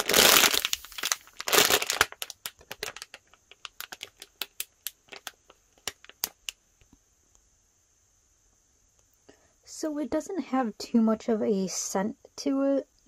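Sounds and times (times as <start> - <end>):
plastic bag crinkling: 0.0 - 6.6.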